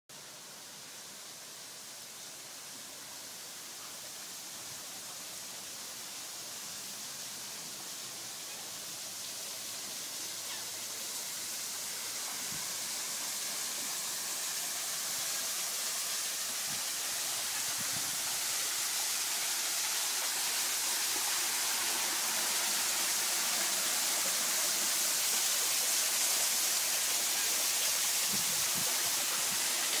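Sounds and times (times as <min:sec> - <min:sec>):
waterfall rushing: 0:07.2 - 0:30.0.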